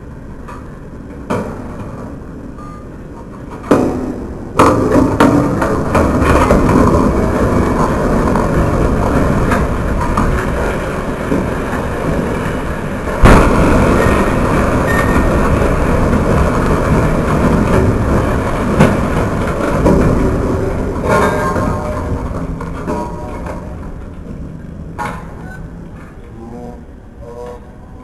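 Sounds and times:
building collapse rumble: 0:00.0 - 0:28.0
heavy crash: 0:03.8 - 0:25.3.

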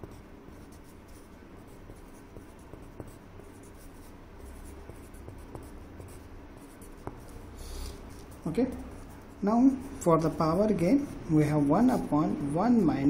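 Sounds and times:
pencil scratching on paper: 0:00.0 - 0:13.0.

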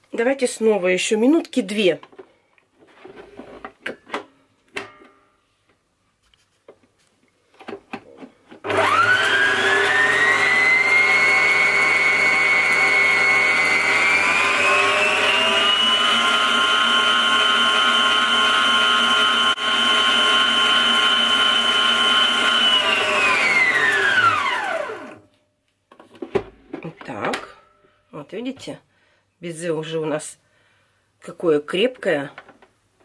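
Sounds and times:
stand mixer motor whine: 0:08.6 - 0:25.2.

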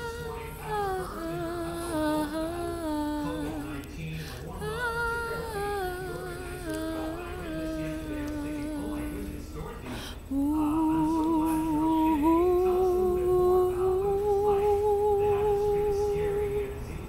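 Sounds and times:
woman breathing: 0:00.0 - 0:08.7, 0:09.8 - 0:10.4
woman singing without words: 0:00.0 - 0:16.9.

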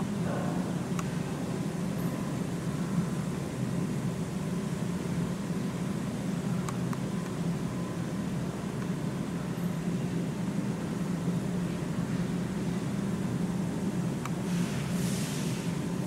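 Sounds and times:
low hum with hiss: 0:00.0 - 0:16.0.

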